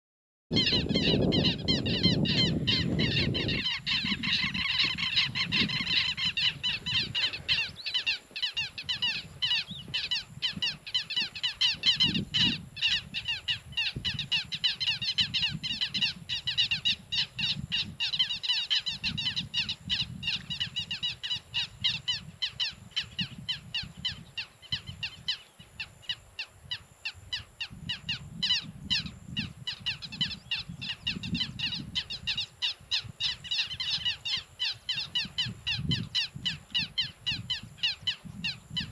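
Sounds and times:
birds chirping: 0.5 - 25.9.

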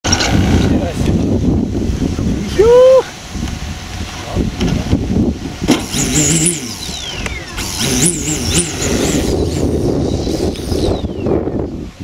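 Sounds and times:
engine throttle blips: 5.6 - 9.6
model airplane engine idling: 5.8 - 9.6.

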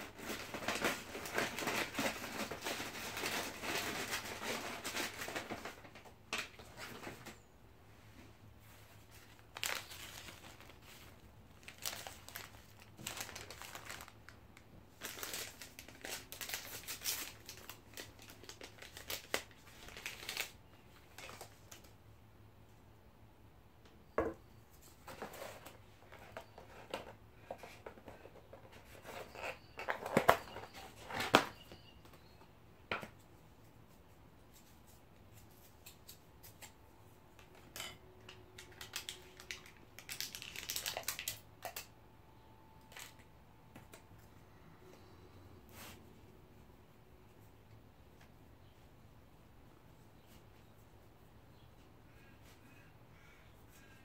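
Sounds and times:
paper packaging crinkling: 0.0 - 7.4, 8.6 - 22.0, 24.8 - 31.8, 37.4 - 41.9, 42.8 - 44.0.

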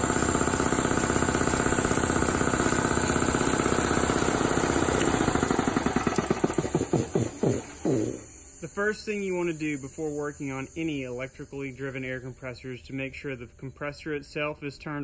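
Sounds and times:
air compressor pumping: 0.0 - 13.4.

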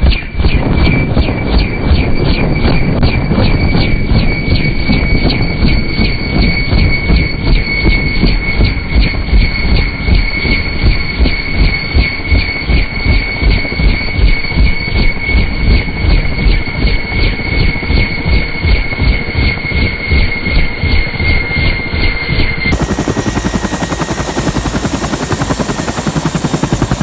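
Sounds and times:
helicopter turbine whine: 0.0 - 27.0
rotor blades beating: 0.0 - 27.0.

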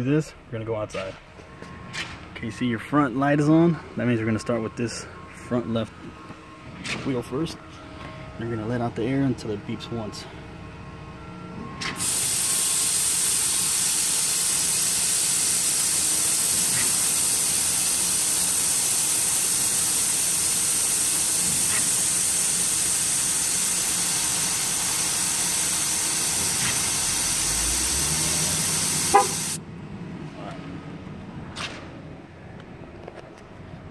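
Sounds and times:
air hissing from tire valve: 11.9 - 29.6.

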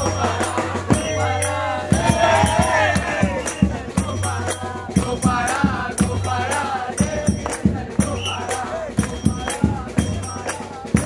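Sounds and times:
drum strikes: 0.0 - 11.0
group singing a chant: 0.0 - 11.0
hand claps: 7.0 - 11.0.

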